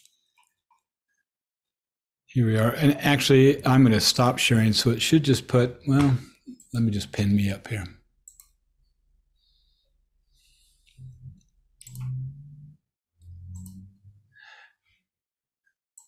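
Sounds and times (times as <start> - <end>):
faint clicks: 10.8 - 12.2.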